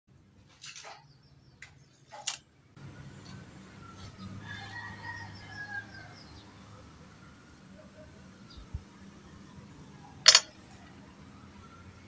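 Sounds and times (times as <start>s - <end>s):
steady background noise: 0.1s - 12.0s.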